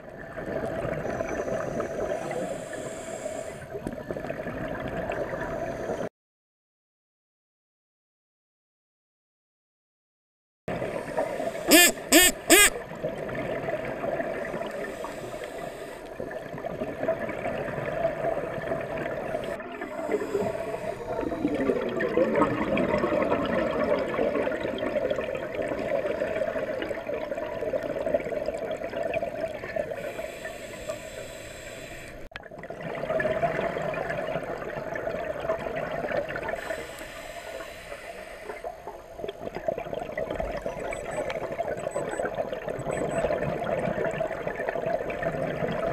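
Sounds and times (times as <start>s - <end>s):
exhaled bubbles gurgling underwater: 0.0s - 6.1s, 12.8s - 45.9s
regulator inhalation hiss: 2.0s - 3.7s, 11.2s - 12.7s, 14.8s - 16.1s, 19.9s - 21.2s, 30.0s - 32.3s, 36.6s - 38.9s.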